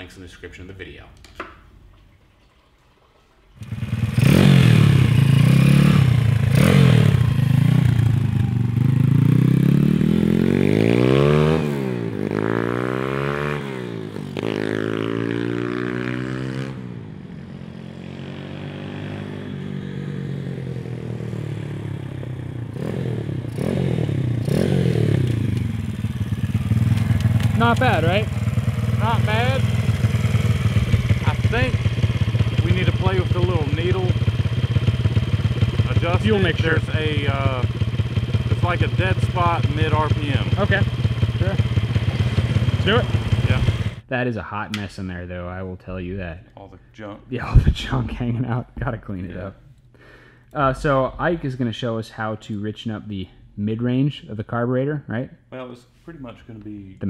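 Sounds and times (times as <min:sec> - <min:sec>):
mini bike engine revving: 0:03.6 - 0:16.9, 0:17.8 - 0:44.0.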